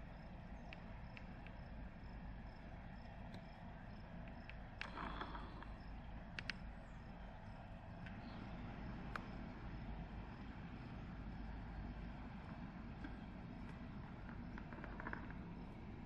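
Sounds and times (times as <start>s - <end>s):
faint low rumble: 0.0s - 16.0s
insects chirping: 0.0s - 16.0s.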